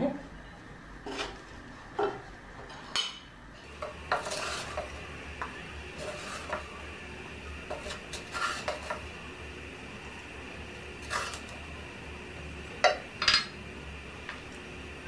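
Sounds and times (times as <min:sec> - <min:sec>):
faint steady hum: 0:00.0 - 0:15.0
wooden spatula scraping pan: 0:03.6 - 0:06.8, 0:07.6 - 0:09.0, 0:11.0 - 0:11.6.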